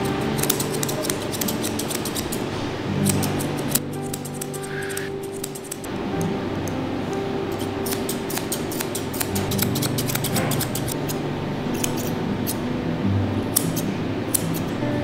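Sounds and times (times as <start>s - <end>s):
scissors snipping fur: 0.0s - 2.4s, 3.0s - 5.9s, 7.5s - 12.6s, 13.5s - 14.8s.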